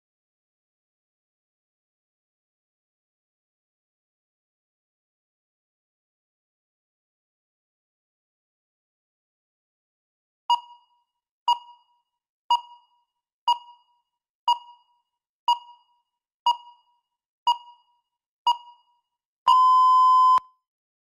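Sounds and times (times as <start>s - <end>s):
countdown timer beeps: 10.5s - 10.9s, 11.5s - 11.9s, 12.5s - 13.9s, 14.5s - 14.9s, 15.5s - 15.9s, 16.5s - 16.9s, 17.5s - 17.9s, 18.5s - 18.9s, 19.5s - 20.5s.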